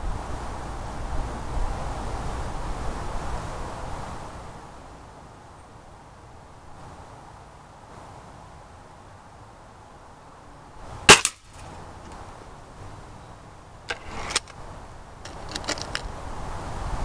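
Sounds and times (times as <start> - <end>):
air rifle firing: 11.1 - 11.5.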